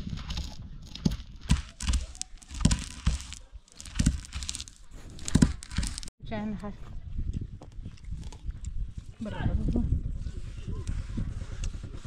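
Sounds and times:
nuts cracking: 0:00.2 - 0:06.1
stone grinding on stone slab: 0:00.2 - 0:06.1.

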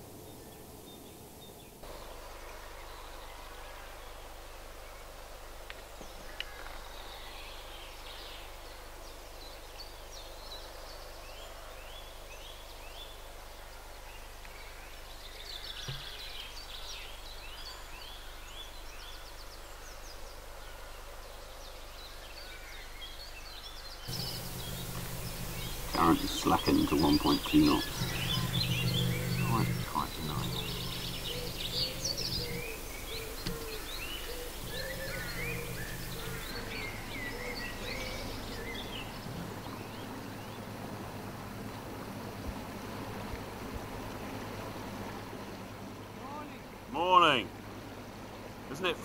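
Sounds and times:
steady background hiss: 0:00.0 - 0:49.0
small birds singing: 0:06.0 - 0:40.9.

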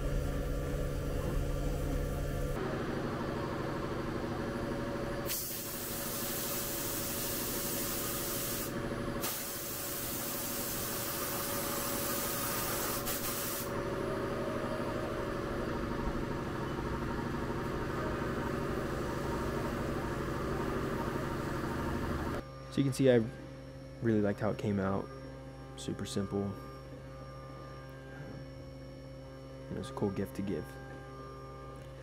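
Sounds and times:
milling machine humming: 0:00.0 - 0:05.2, 0:05.8 - 0:32.0
compressed air blow gun hissing: 0:05.3 - 0:13.7.

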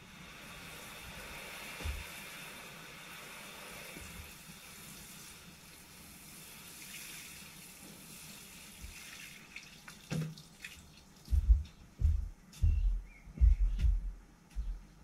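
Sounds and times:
water showering onto leaves: 0:00.0 - 0:11.3.

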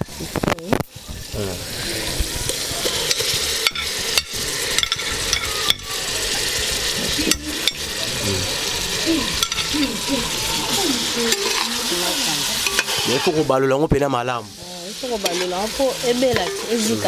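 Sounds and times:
food sizzling in a pot: 0:00.0 - 0:17.0
metal utensils clicking on pot: 0:02.8 - 0:06.0, 0:07.2 - 0:08.0, 0:09.4 - 0:10.0, 0:11.2 - 0:13.8, 0:15.1 - 0:16.9.

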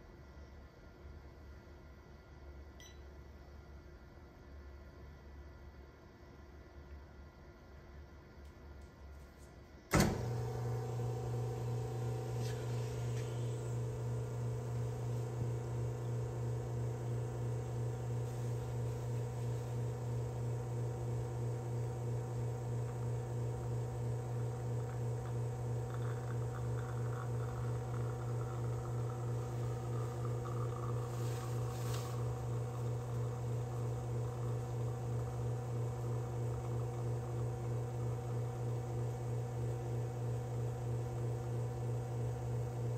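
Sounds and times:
espresso machine pump humming: 0:10.0 - 0:42.9
coffee pouring into pitcher: 0:10.4 - 0:42.9.

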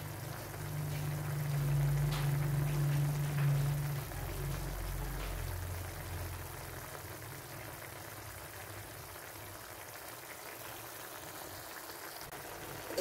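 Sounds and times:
low hum: 0:00.0 - 0:06.3
sauce bubbling in a pan: 0:00.0 - 0:13.0.

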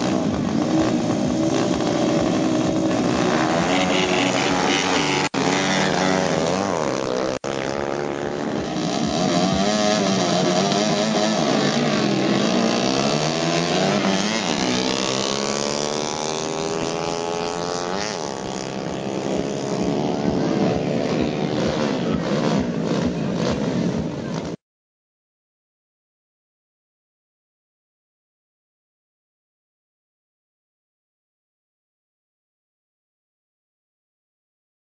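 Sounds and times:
motorcycle engines revving: 0:00.0 - 0:24.6.

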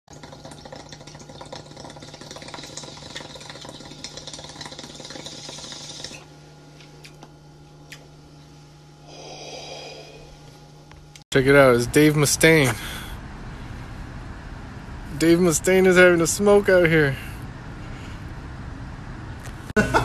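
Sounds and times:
water bubbling in a bong: 0:00.1 - 0:06.3
steady low hum: 0:00.1 - 0:20.0.

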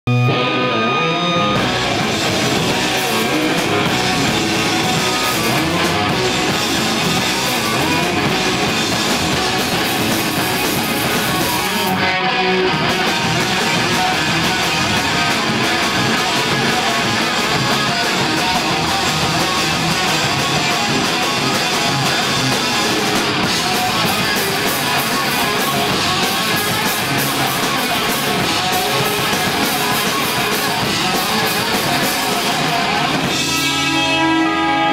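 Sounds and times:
rock band playing: 0:00.1 - 0:34.9
held guitar note: 0:32.6 - 0:34.9.

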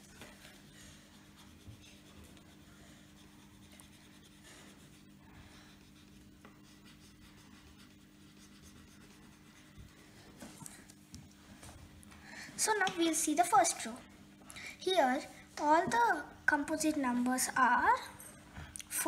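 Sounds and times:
crayon colouring on paper: 0:00.0 - 0:10.1
low steady hum: 0:00.0 - 0:19.0.

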